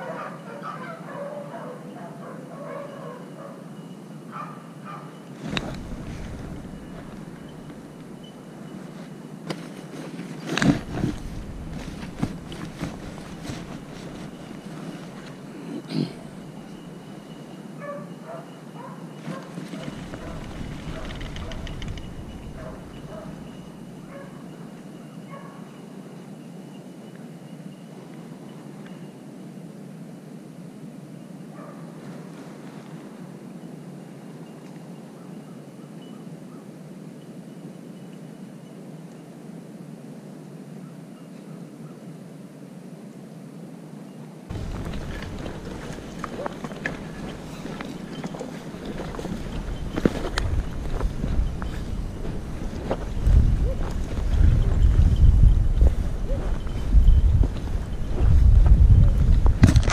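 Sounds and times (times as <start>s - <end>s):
hounds baying: 0.0s - 5.2s, 13.8s - 25.8s, 44.5s - 54.8s, 55.8s - 56.9s.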